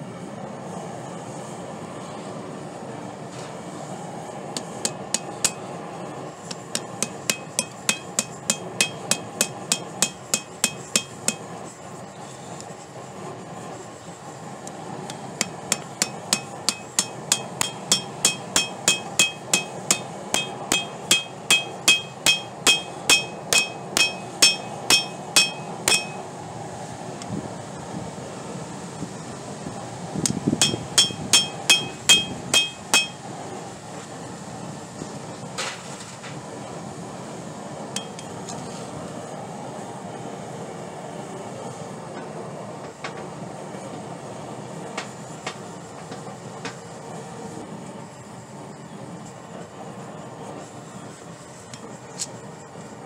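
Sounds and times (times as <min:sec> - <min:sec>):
hammer ringing on tongs and anvil: 0:04.6 - 0:05.7, 0:06.5 - 0:11.6, 0:15.4 - 0:26.3, 0:30.6 - 0:33.3, 0:38.0 - 0:38.3.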